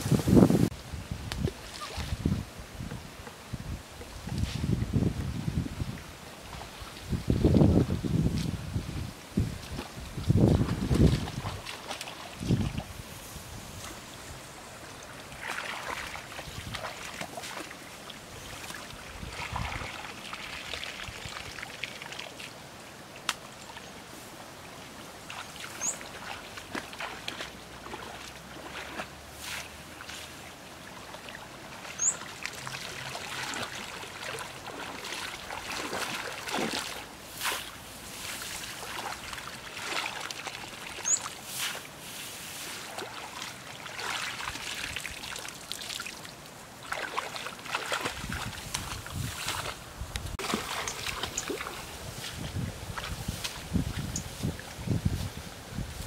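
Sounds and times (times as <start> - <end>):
muddy water sloshing and splashing: 1.4 - 2.9, 4.0 - 13.0, 14.8 - 24.0, 24.6 - 56.0
plants swishing against legs: 35.5 - 39.2, 41.4 - 43.2, 48.2 - 56.0.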